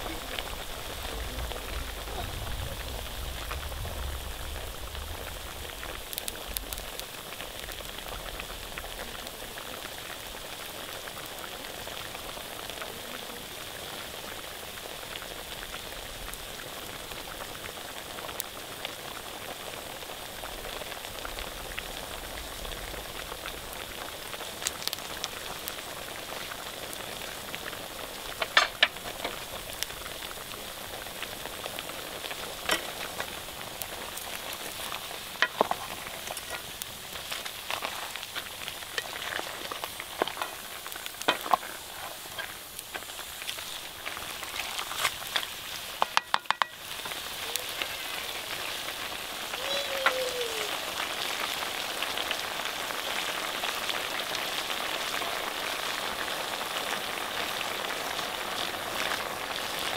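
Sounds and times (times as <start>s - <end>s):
pork sizzling in a pan: 0.0s - 59.9s
sharp clicks and pops: 28.3s - 29.4s, 32.6s - 47.2s.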